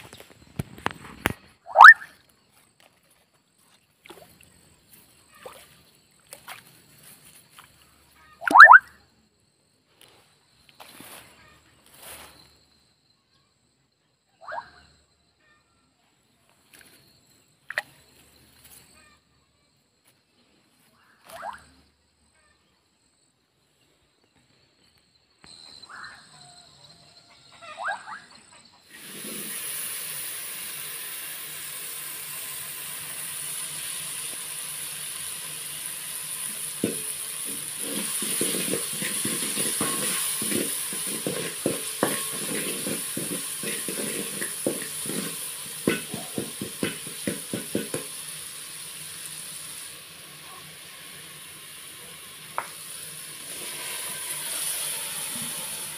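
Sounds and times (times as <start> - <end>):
tomatoes sizzling in hot oil: 28.9 - 55.9.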